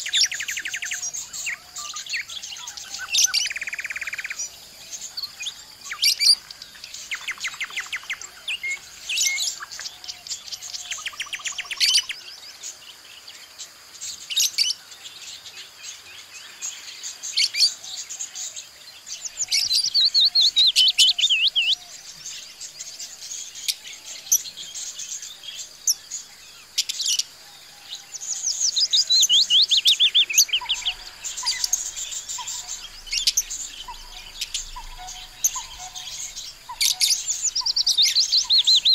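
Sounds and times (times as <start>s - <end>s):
budgerigars chirping: 29.0s - 38.9s.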